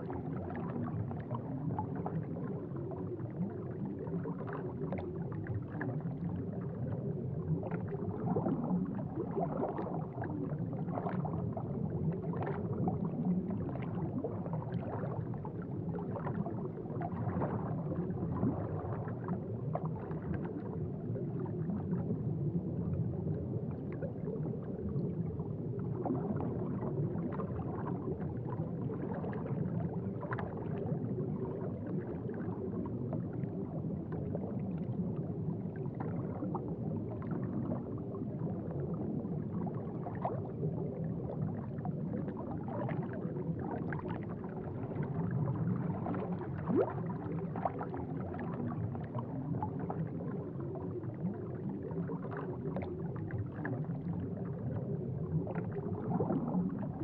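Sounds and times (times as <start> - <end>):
aquarium water bubbling: 0.0 - 57.0
crackling bubble pops: 42.3 - 50.1, 55.3 - 57.0.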